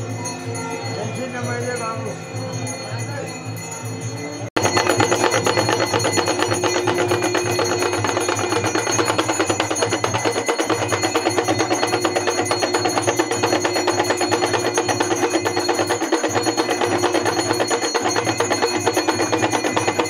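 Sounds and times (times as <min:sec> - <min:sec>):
metal percussion ringing: 0:00.0 - 0:20.0.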